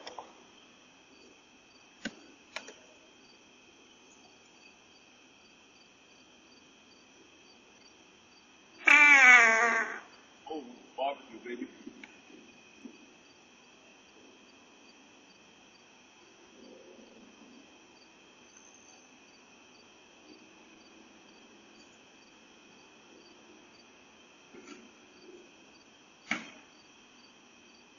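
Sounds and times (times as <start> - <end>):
crickets chirping: 0.0 - 27.9.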